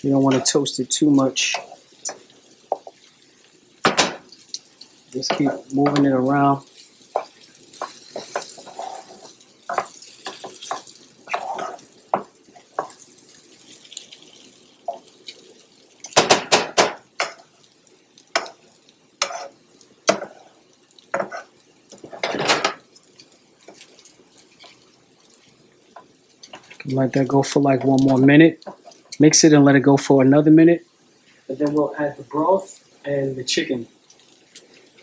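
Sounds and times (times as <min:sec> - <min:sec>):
wooden spoon scraping a pan: 0:00.1 - 0:00.8, 0:01.4 - 0:03.1, 0:05.1 - 0:13.0, 0:19.2 - 0:29.2.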